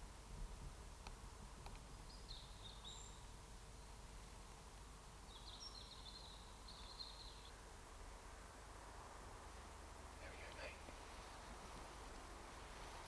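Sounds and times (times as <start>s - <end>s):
songbird chirps: 1.6s - 4.2s, 4.8s - 8.6s.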